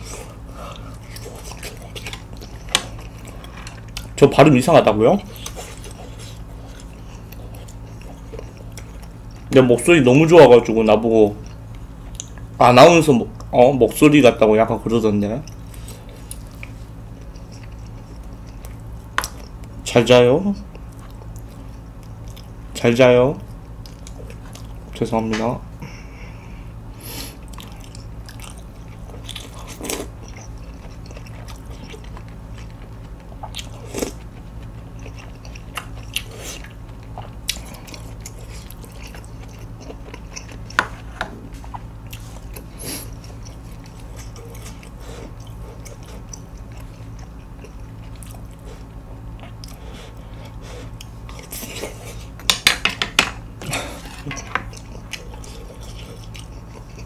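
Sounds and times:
chewing: 0.0s - 4.2s, 5.2s - 9.5s, 15.4s - 19.8s, 20.6s - 22.6s, 23.4s - 24.9s, 27.3s - 52.5s, 53.6s - 57.0s
steady low hum: 0.0s - 57.0s.

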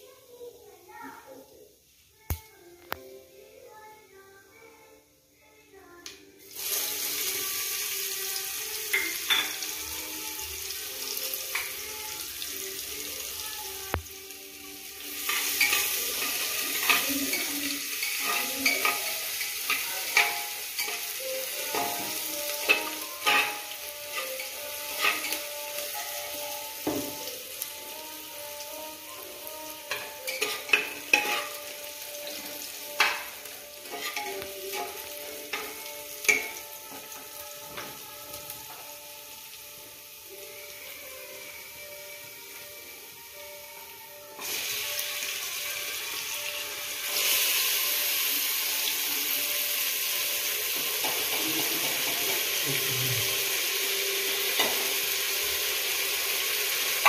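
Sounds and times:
onion sizzling in hot oil: 6.4s - 57.0s
spatula scraping metal pot: 29.9s - 31.6s, 33.8s - 35.0s.

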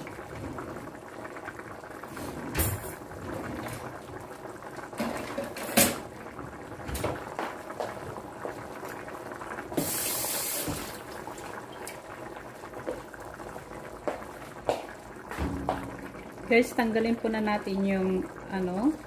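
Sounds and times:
soup bubbling in a pot: 0.0s - 19.0s
hiss: 9.8s - 10.8s.

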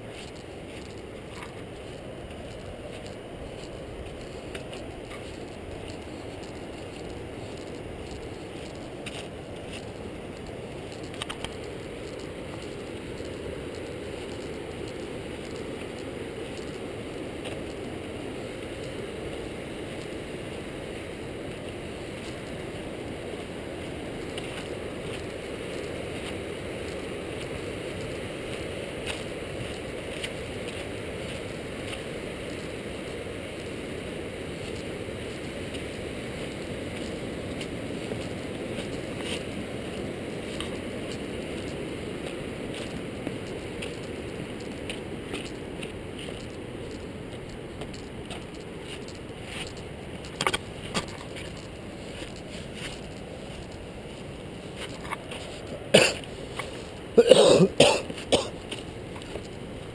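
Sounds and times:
wind over camera: 0.0s - 57.2s, 58.0s - 59.9s
tyres rolling on dirt: 0.0s - 59.9s
faint clicks: 10.9s - 13.3s.

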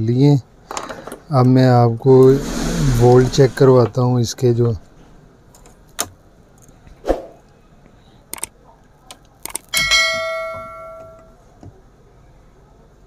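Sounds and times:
sharp clicks: 8.3s - 9.7s
bell ding: 9.8s - 11.4s.

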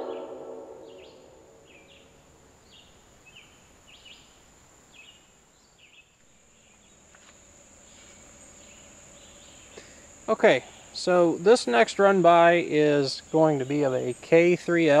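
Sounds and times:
high-pitched insect drone: 0.0s - 1.4s
bird chirping: 0.0s - 4.4s.

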